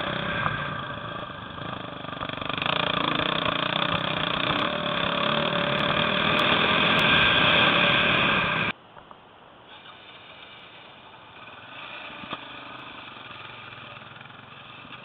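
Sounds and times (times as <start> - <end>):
motorcycle engine on dirt track: 0.0 - 8.8, 9.7 - 15.0.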